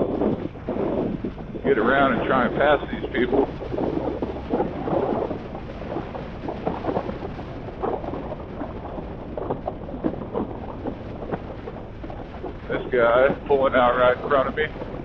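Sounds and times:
motorcycle engine rumble: 0:00.0 - 0:15.0
road noise: 0:00.0 - 0:15.0
wind buffeting microphone: 0:00.0 - 0:15.0.

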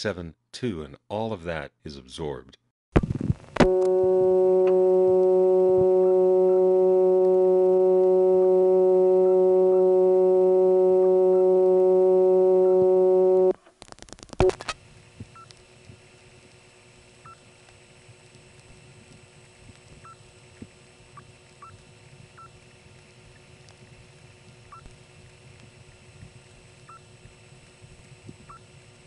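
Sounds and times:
buzzy telephone dial tone: 0:03.6 - 0:13.5
hissy line noise: 0:03.6 - 0:13.5.

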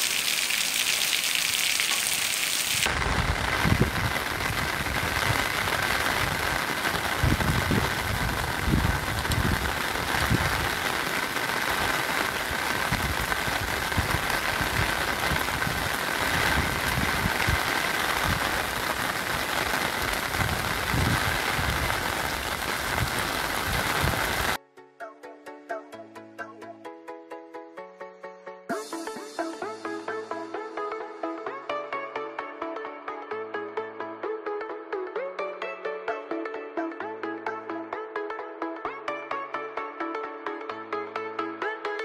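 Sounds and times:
rain on a cobbled street: 0:00.0 - 0:24.6.

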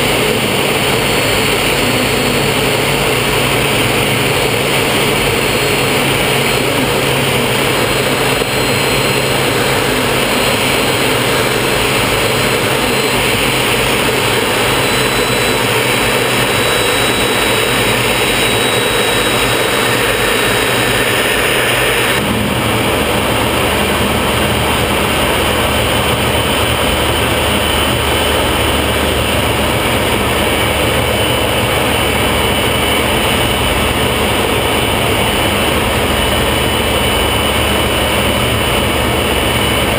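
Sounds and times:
jet engine and rushing airflow: 0:00.0 - 0:39.9.

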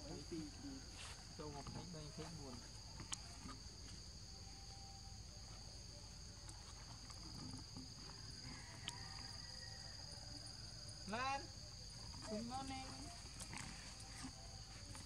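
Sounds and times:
high-pitched insect drone: 0:03.4 - 0:15.0.

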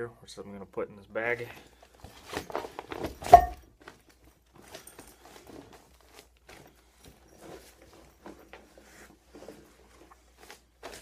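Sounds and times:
fabric bag rustling: 0:01.8 - 0:11.0
weight plates clanking: 0:03.2 - 0:03.6.

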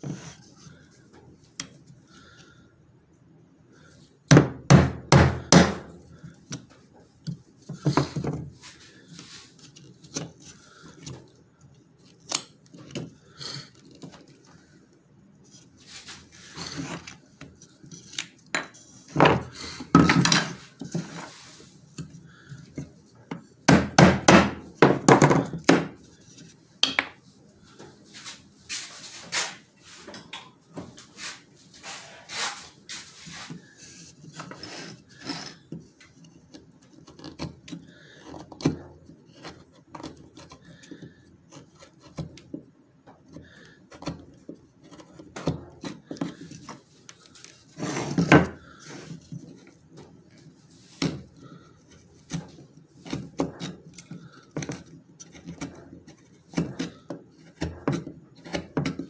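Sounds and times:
tools knocking on workbench: 0:04.3 - 0:05.9, 0:23.3 - 0:26.0
knife scraping wooden board: 0:15.5 - 0:17.2, 0:31.2 - 0:42.5, 0:43.3 - 0:59.0.

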